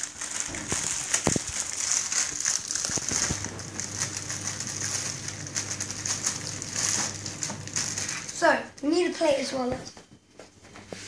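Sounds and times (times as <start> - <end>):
plastic bag crinkling: 0.0 - 8.5.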